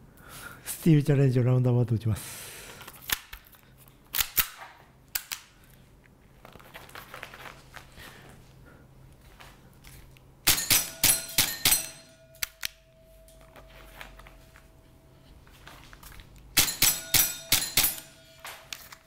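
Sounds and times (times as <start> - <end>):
pellets striking steel plates: 10.4 - 13.4, 16.6 - 18.8
airsoft pistol shots: 10.5 - 12.0, 16.6 - 18.2
steel plate ringing: 10.5 - 13.4, 16.6 - 18.5.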